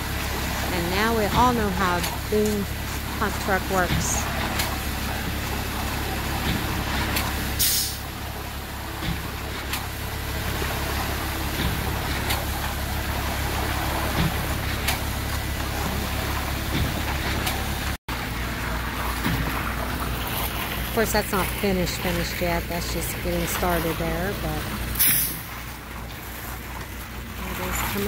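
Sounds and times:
concrete pump truck running: 0.0 - 28.0
short hiss of air: 7.6 - 8.0.

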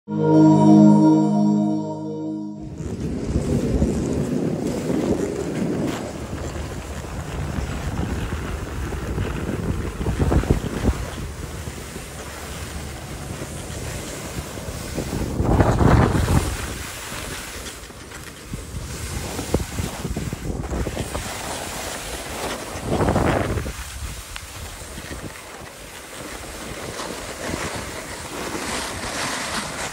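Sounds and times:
wind rushing over microphone: 2.7 - 17.2, 18.5 - 25.3
skis carving on snow: 2.8 - 29.9.

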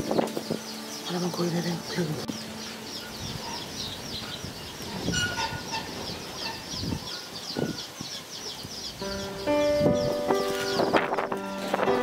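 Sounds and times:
music: 0.0 - 4.5, 9.0 - 12.0
birds chirping: 0.0 - 12.0.

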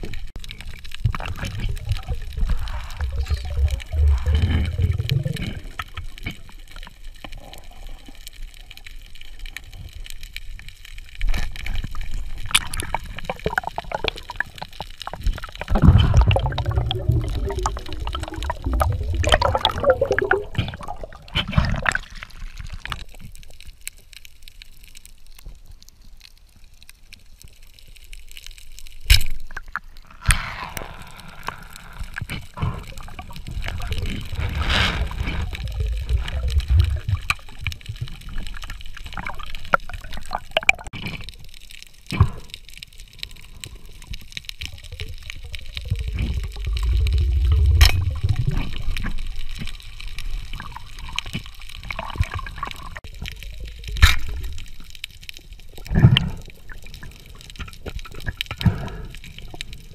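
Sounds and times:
water gurgling and bubbling: 0.0 - 6.5, 11.9 - 23.2, 31.4 - 41.0, 44.6 - 59.9
low rumbles: 1.0 - 6.1, 12.2 - 22.0, 31.9 - 40.9, 44.8 - 57.2.

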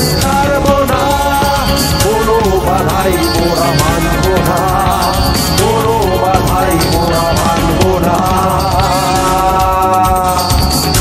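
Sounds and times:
background music: 0.0 - 11.0.

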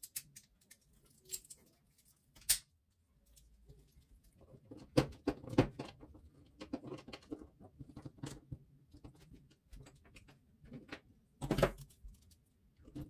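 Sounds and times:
plastic parts clicking and tapping: 4.5 - 13.0.

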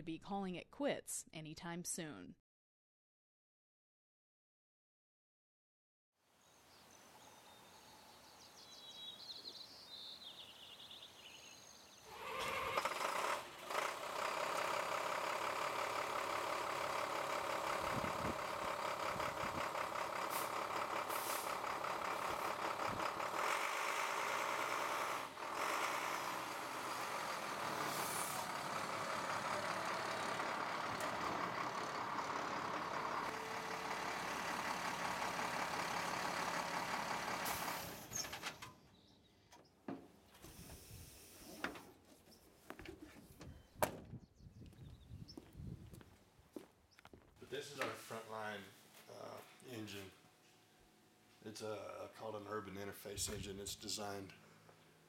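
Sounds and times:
large truck engine running: 12.8 - 38.6.

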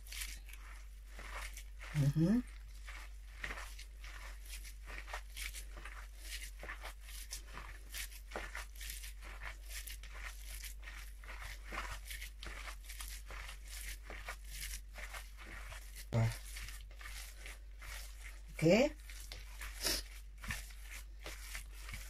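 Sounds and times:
gloved hand squishing raw meat: 0.0 - 22.0.

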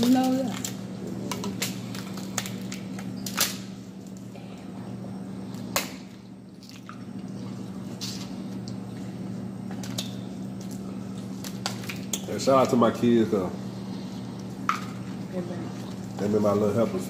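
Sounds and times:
crab shells cracking: 0.0 - 4.2
low steady hum: 0.0 - 17.0.

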